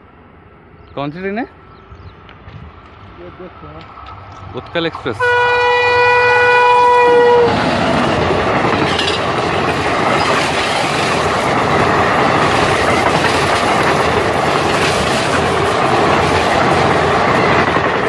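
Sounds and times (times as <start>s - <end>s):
train wheels on rail: 1.7s - 18.0s
train horn blast: 5.2s - 7.7s.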